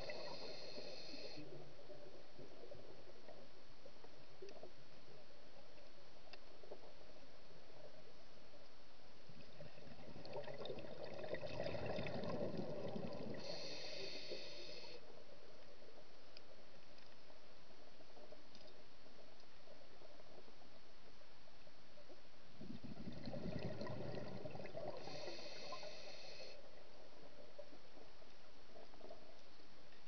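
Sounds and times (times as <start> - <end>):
underwater hiss: 0.0 - 2.0, 11.8 - 15.1, 23.3 - 26.7.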